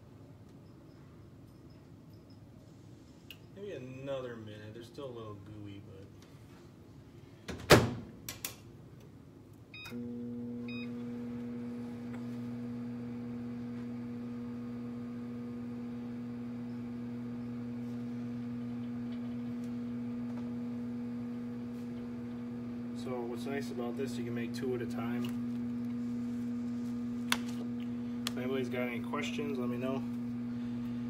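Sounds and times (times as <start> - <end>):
microwave humming: 9.6 - 31.0.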